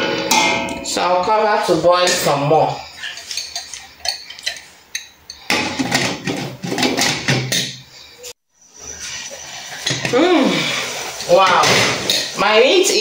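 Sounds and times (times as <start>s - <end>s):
cookware clinking: 0.0s - 7.9s.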